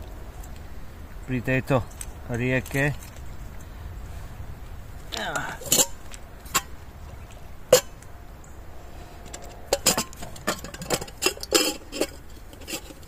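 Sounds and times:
camping cookware clinking: 5.2 - 8.2, 9.2 - 13.0.

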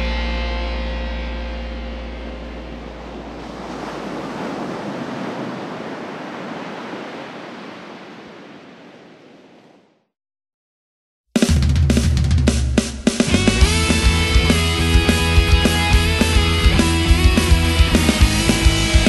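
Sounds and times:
rushing surf-like noise: 1.7 - 9.9
distorted guitars and drums: 11.4 - 19.0.

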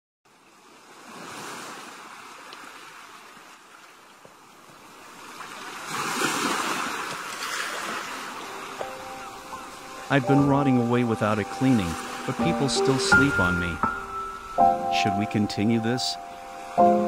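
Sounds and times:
ocean waves rushing: 4.7 - 17.0.

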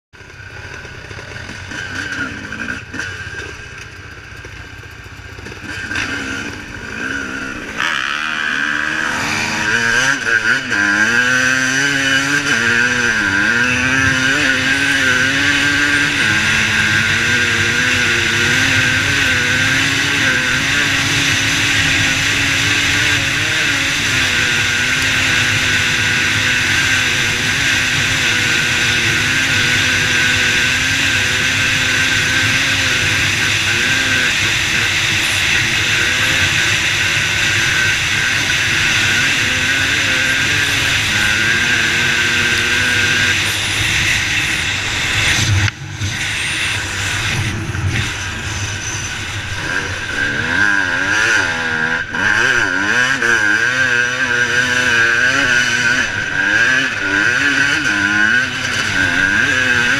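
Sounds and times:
dirt bike engines idling: 0.2 - 59.9
motorbike accelerating through gears: 0.2 - 59.9
wind noise: 40.4 - 50.7.

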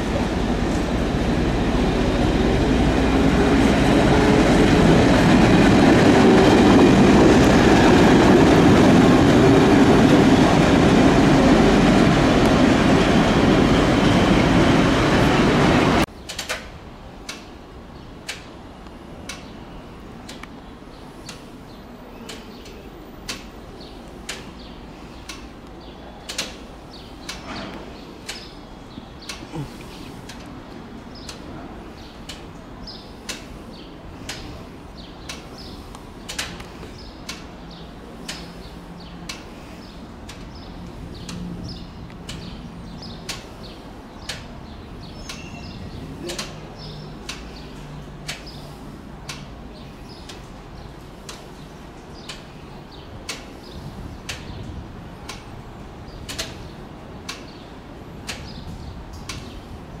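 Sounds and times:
sharp clicks: 25.3 - 26.6, 56.3 - 56.7.

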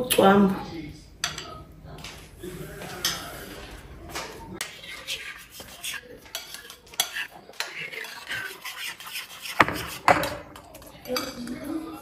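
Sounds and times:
metal spoon scraping ceramic bowl: 4.6 - 11.4.

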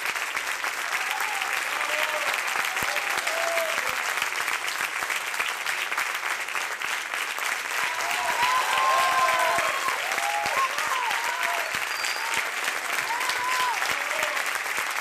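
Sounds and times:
audience applauding: 0.0 - 15.0
voices calling out and cheering: 7.8 - 14.4.

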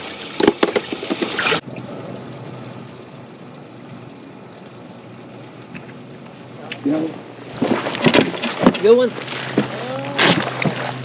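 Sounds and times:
rushing water: 0.0 - 11.0
water splashing: 0.0 - 11.0.

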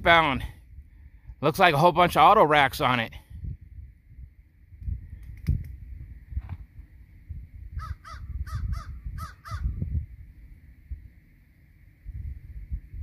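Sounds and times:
wind rumble on microphone: 0.0 - 2.4, 3.1 - 13.0
crow cawing: 7.8 - 9.8.

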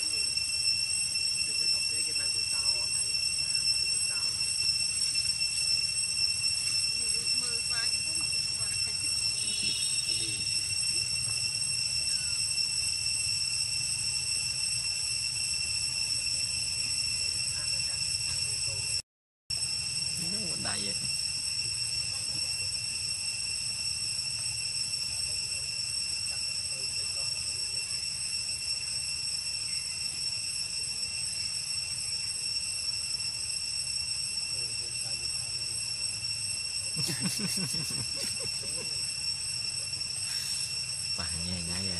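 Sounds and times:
high-pitched insect drone: 0.0 - 41.9.

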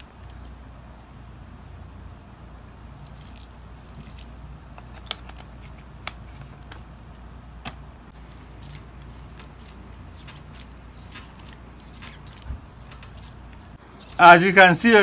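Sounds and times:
dough squishing in a bowl: 2.9 - 7.0, 7.6 - 14.4.

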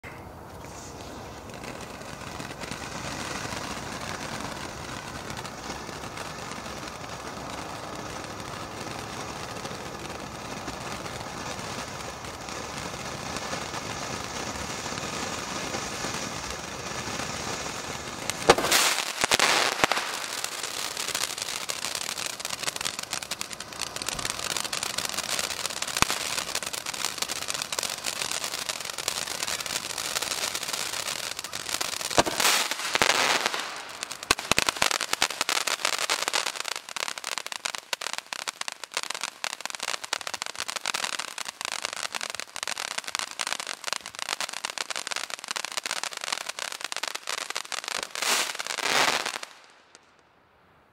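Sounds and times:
firework fountain hissing: 0.0 - 49.8
firework crackling: 0.0 - 50.2
sharp firework bang: 18.4 - 20.4, 31.6 - 34.8.

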